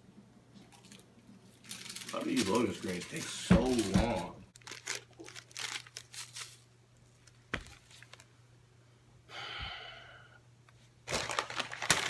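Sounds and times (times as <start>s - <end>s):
paper wrapper crinkling: 0.7s - 8.3s, 11.0s - 12.0s
soft breathy exhale: 9.3s - 10.4s.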